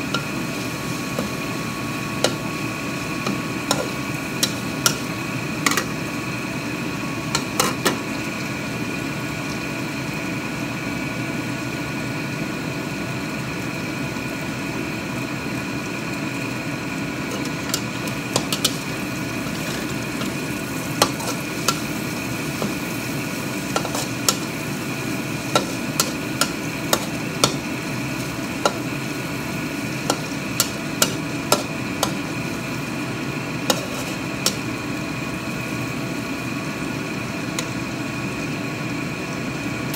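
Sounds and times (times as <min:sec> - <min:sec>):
metal spatula scraping a wok: 0:03.2 - 0:05.1, 0:17.3 - 0:22.0, 0:22.6 - 0:24.6, 0:25.4 - 0:28.8, 0:33.6 - 0:34.7.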